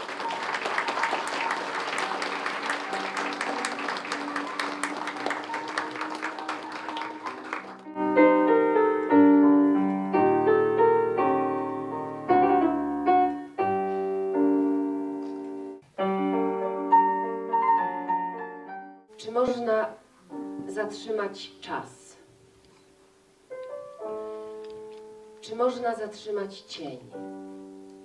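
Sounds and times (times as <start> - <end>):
applause: 0.0 - 7.9
slow piano chords: 0.0 - 19.6, 20.2 - 21.3, 23.4 - 25.5, 27.1 - 28.0.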